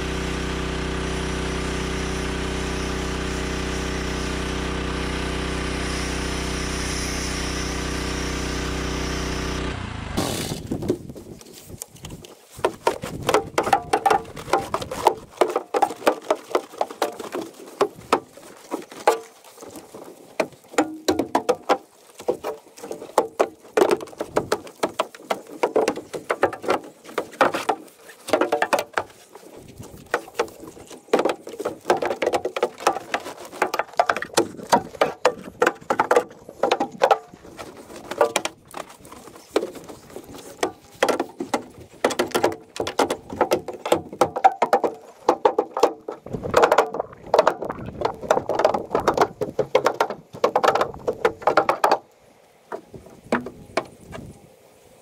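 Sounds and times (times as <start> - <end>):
brush scrubbing metal floor: 12.4 - 51.6.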